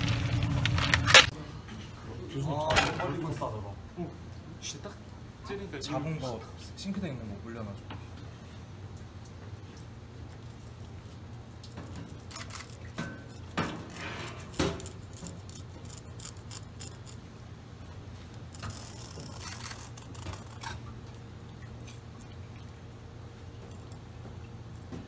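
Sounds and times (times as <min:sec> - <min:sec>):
knife scraping eel on board: 0:13.9 - 0:17.3, 0:18.5 - 0:20.8.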